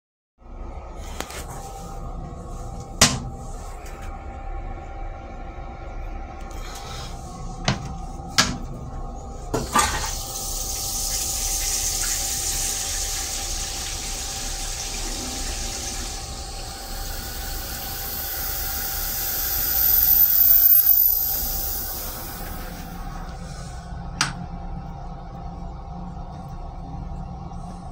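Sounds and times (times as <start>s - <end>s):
toilet flush rushing hiss: 9.4s - 24.4s
high thin whine: 14.7s - 24.4s.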